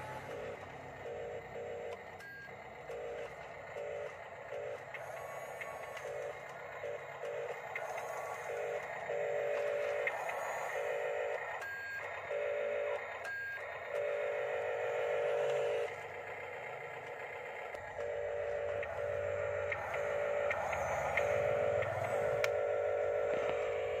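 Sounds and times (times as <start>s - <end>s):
small electric motors whining: 0.0s - 24.0s
lower hum: 2.9s - 24.0s.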